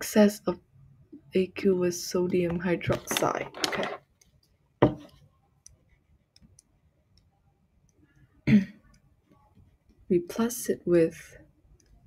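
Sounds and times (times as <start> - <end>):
stylus clicking on a tablet: 5.6 - 8.2.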